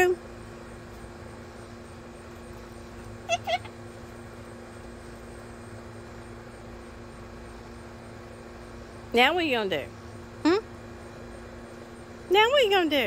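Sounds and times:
faint steady hum: 0.0 - 13.0
cockatoo calls: 3.2 - 3.8.

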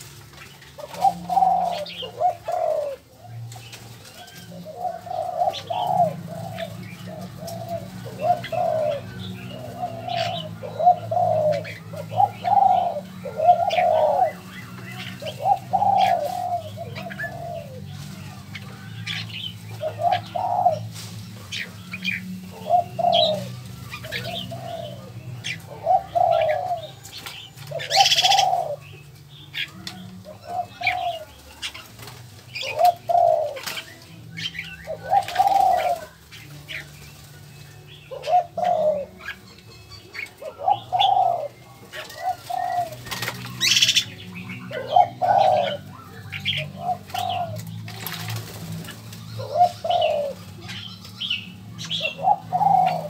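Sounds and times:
doves cooing: 0.0 - 53.0
small birds chirping: 0.0 - 53.0
wings flapping: 30.8 - 37.4, 41.9 - 44.2, 46.9 - 50.9.

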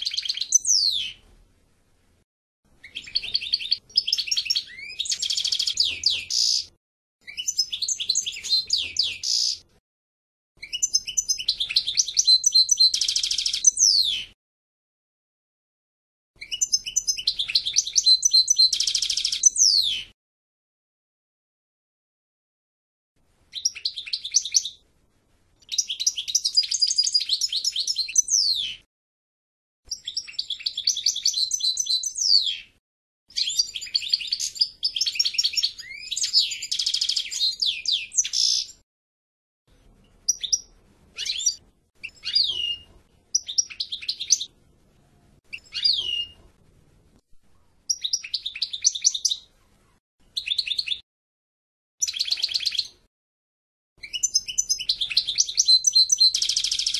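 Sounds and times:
goldfinch twittering song: 0.0 - 1.2, 2.8 - 9.7, 10.6 - 14.4, 16.4 - 20.1, 23.5 - 24.8, 25.6 - 28.9, 29.9 - 32.7, 33.3 - 38.8, 40.2 - 44.5, 45.5 - 46.4, 47.9 - 49.5, 52.0 - 53.0, 54.0 - 56.9.

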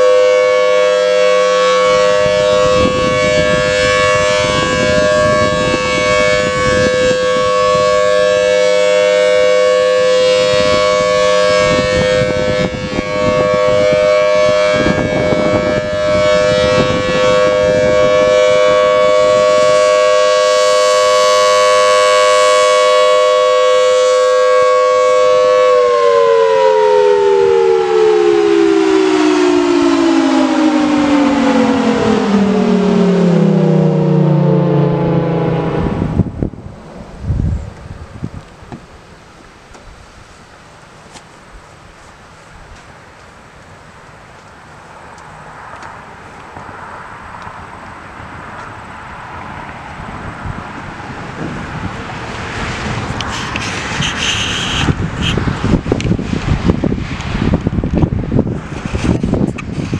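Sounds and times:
siren winding down: 0.0 - 38.6
two-tone siren wail: 0.0 - 38.7, 45.0 - 59.9.

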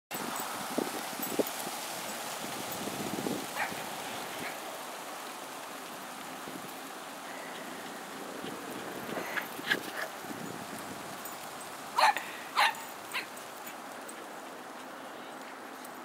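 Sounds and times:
wind hissing on microphone: 0.1 - 13.4
small dogs yipping: 3.6 - 4.6, 11.9 - 13.9.

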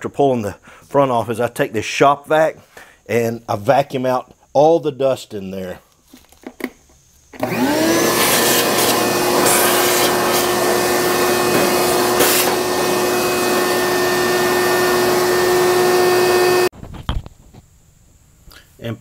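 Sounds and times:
hose sucking dust: 7.4 - 16.7
vacuum cleaner motor running: 7.4 - 16.7.

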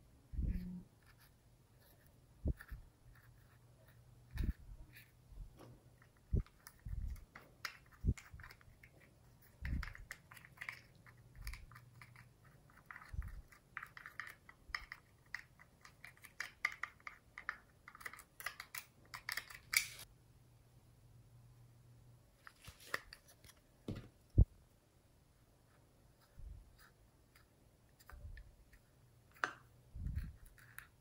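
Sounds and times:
plastic spatula scraping and clicking: 4.3 - 20.1, 26.7 - 31.0.

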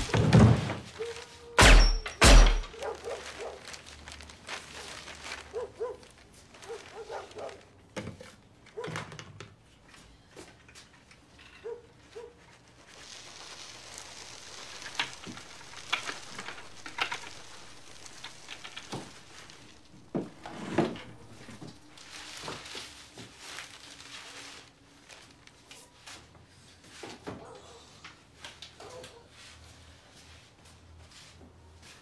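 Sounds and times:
quicklime and plastic sheeting rustling: 0.0 - 8.4, 12.0 - 27.0.

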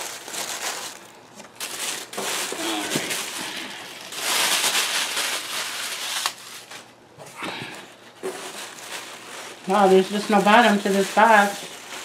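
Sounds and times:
tissue paper rustling: 0.0 - 7.0, 7.7 - 12.0.

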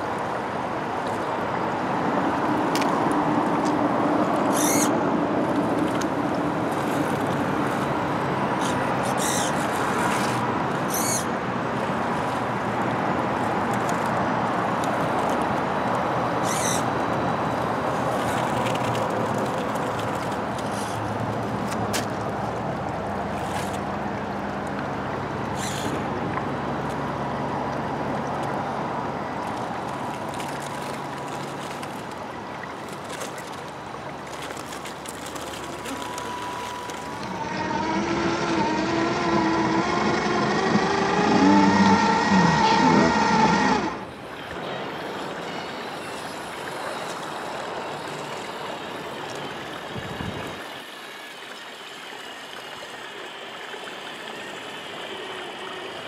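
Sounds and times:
shallow stream running: 0.0 - 56.0
electric motor whine: 36.1 - 46.5.

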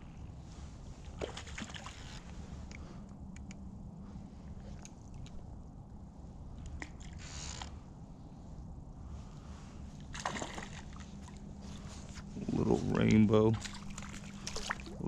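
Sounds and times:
steady low rumble: 0.0 - 15.0
soft handling clicks and rustles: 1.8 - 3.7, 4.3 - 5.5, 10.9 - 14.8.

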